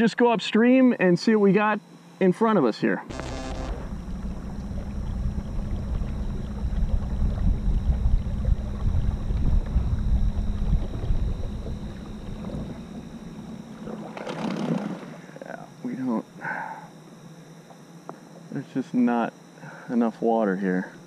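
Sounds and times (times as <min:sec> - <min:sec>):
water rushing along hull: 0:03.6 - 0:15.3
wind buffeting microphone: 0:03.9 - 0:13.7.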